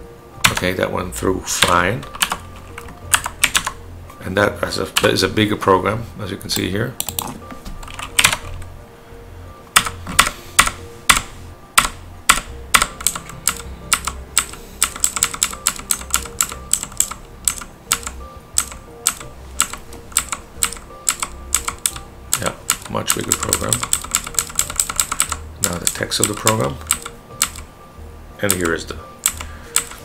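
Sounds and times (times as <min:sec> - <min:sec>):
computer keyboard keys clicking: 0:00.4 - 0:00.7, 0:01.6 - 0:03.8, 0:07.0 - 0:08.6, 0:09.8 - 0:27.7, 0:28.5 - 0:30.0.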